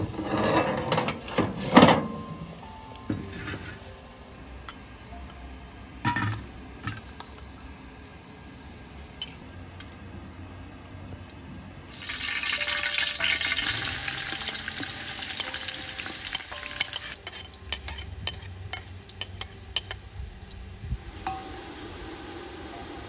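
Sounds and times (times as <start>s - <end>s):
onions sizzling in butter: 11.9s - 23.0s
metal spoon scraping pot: 16.3s - 20.0s.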